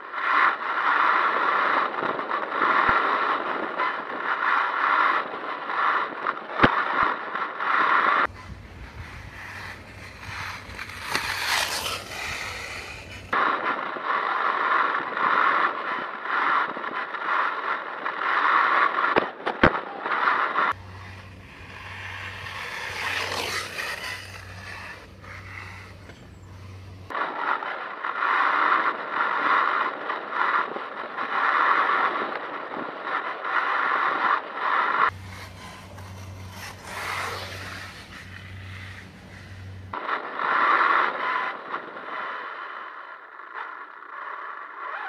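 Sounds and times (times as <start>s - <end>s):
toy car wheels rattling on stones: 8.3s - 13.4s.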